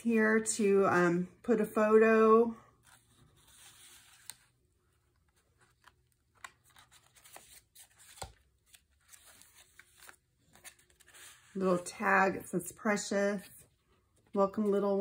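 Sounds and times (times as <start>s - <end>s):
pages turning: 2.8s - 11.7s
paper rustling: 2.8s - 11.7s.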